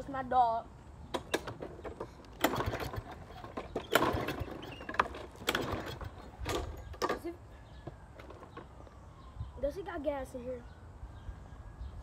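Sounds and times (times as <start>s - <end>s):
recoil starter rattling whir: 1.2s - 7.3s.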